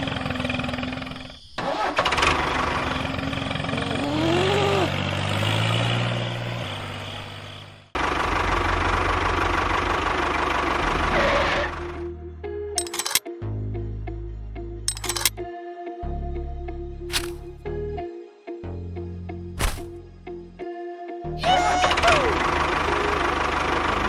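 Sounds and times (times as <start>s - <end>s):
vehicle engine running: 0.0s - 12.2s, 21.4s - 24.0s.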